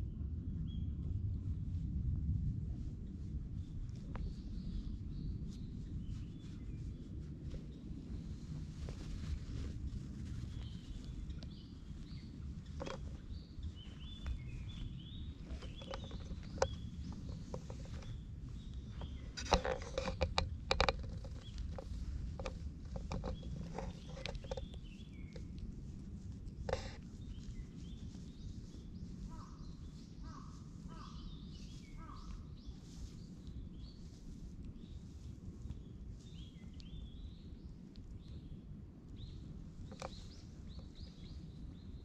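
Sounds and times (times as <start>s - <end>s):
low rumble: 0.0s - 42.0s
small birds chirping: 3.6s - 42.0s
handling noise on microphone: 5.5s - 37.0s, 39.5s - 42.0s
low repeated bird calls: 10.2s - 25.7s, 26.6s - 42.0s.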